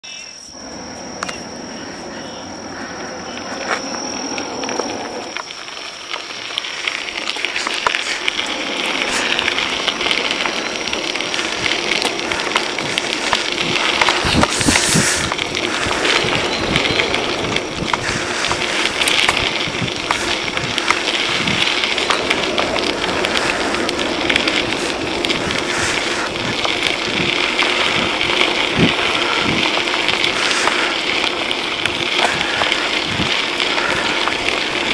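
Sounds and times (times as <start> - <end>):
steady high-pitched tone: 0.0 - 23.2
bicycle tyres rolling on gravel: 0.1 - 34.9
bicycle rattles and thumps: 1.2 - 34.9.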